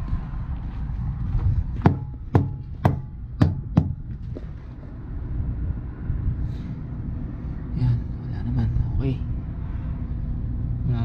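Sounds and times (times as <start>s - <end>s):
steady low rumble: 0.0s - 11.0s
sharp knocks on tires: 1.8s - 4.4s.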